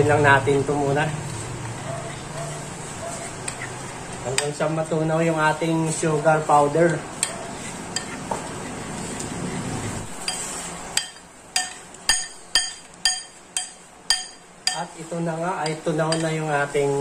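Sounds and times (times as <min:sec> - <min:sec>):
spoon clinking against bowl: 0:11.0 - 0:14.9.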